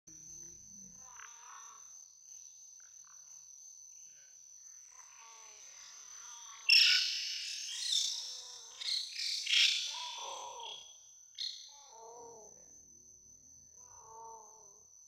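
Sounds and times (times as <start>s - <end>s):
faint steady high tone: 0.1s - 7.0s
infant monkey screaming: 6.2s - 10.9s.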